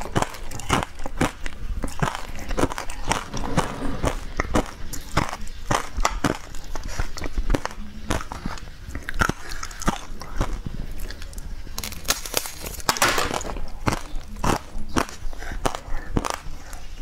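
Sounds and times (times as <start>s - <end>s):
person crunching brittle sheet: 7.5s - 16.5s.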